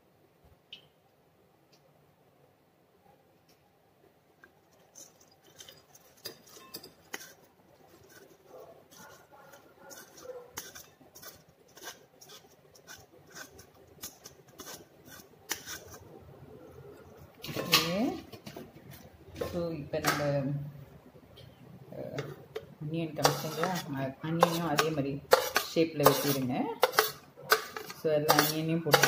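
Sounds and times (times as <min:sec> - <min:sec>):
spatula scraping cabbage from strainer: 0:04.8 - 0:16.2, 0:23.2 - 0:29.0.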